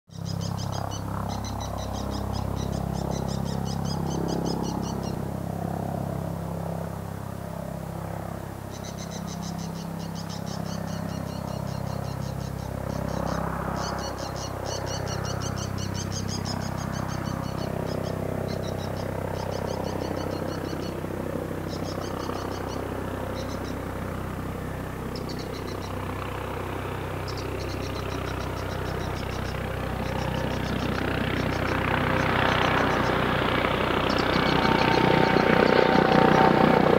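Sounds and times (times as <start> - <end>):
high-pitched chirping trills: 0.1 - 5.2, 8.7 - 21.0, 21.6 - 23.9, 25.1 - 26.0, 27.2 - 33.4, 34.0 - 36.6
helicopter rotor and engine hum: 0.1 - 36.9.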